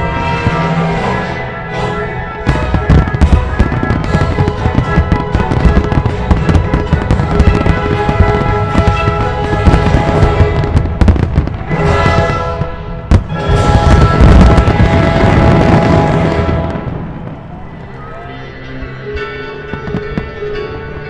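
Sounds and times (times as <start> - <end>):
music with held notes: 0.0 - 21.0
fireworks bursting: 2.4 - 18.0.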